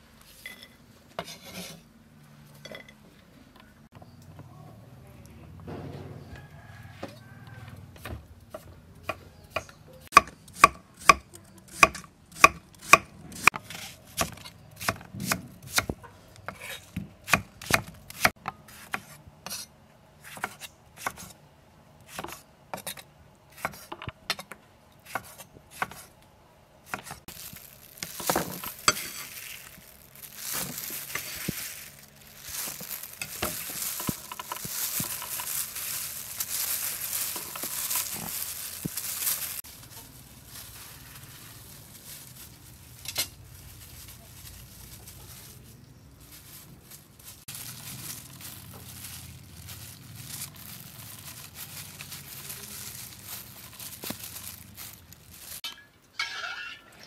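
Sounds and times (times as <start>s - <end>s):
vegetables rustling in plastic colander: 27.2s - 55.6s.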